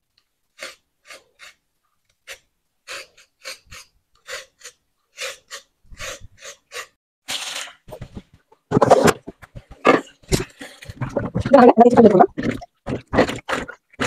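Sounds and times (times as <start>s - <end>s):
vegetable peeler scraping carrot: 0.5s - 1.6s, 2.2s - 7.6s.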